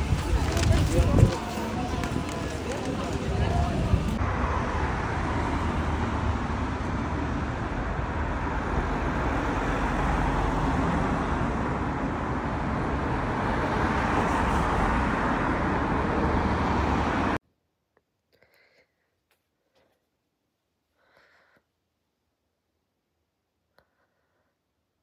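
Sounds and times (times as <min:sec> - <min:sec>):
road traffic rushing past: 0:00.0 - 0:17.4.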